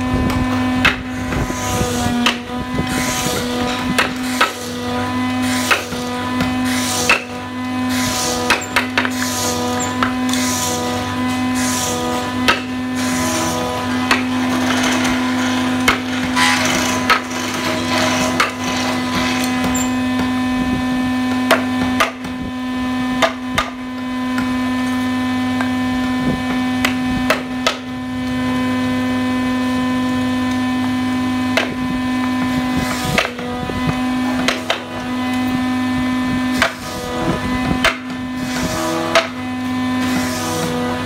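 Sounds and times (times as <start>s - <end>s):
chisel scraping wood: 0.8s - 20.2s, 36.5s - 41.0s.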